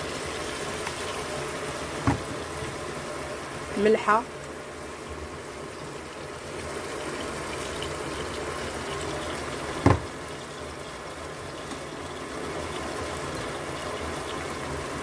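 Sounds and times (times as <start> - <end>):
meat and onions sizzling in a pan: 0.0 - 15.0.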